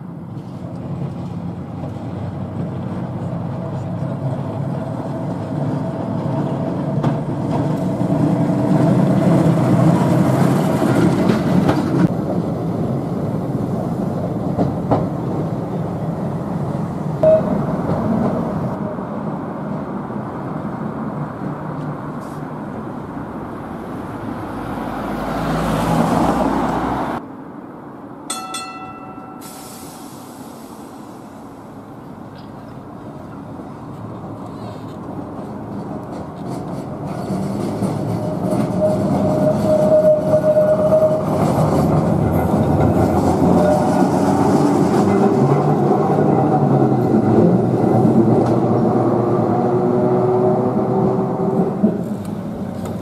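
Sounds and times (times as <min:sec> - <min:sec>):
tram wheels rumbling on rails: 0:00.0 - 0:27.2, 0:28.3 - 0:53.0
short ringing tone: 0:17.2 - 0:17.8, 0:28.3 - 0:30.1.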